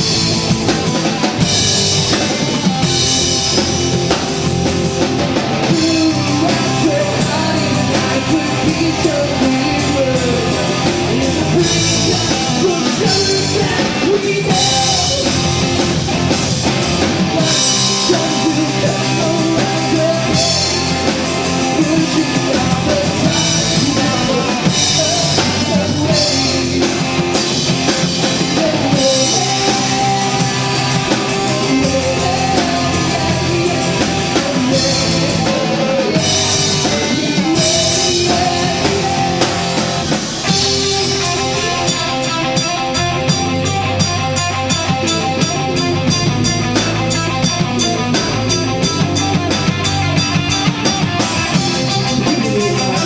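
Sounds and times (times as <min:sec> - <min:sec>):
bass guitar: 0:00.0 - 0:53.0
drum kit and cymbals: 0:00.0 - 0:53.0
electric guitar: 0:00.0 - 0:53.0.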